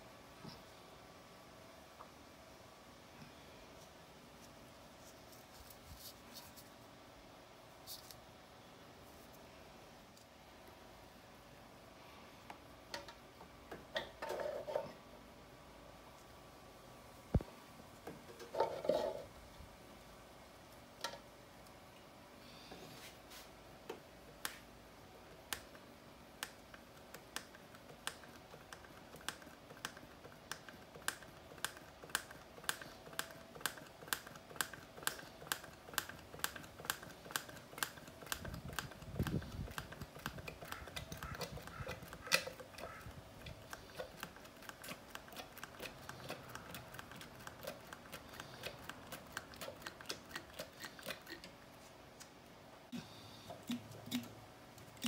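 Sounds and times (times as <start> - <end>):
faint steady hum: 0.0 - 55.0
sharp mechanical clicks: 26.4 - 43.0.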